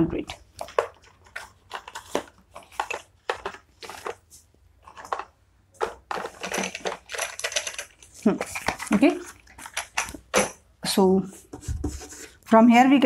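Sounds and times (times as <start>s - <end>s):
chalk scratching on blackboard: 11.3s - 12.4s.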